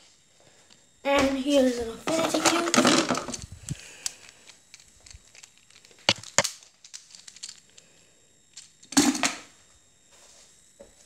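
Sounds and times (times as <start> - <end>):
rustling of toys handled: 1.6 - 7.8
toys clicking: 2.1 - 7.7.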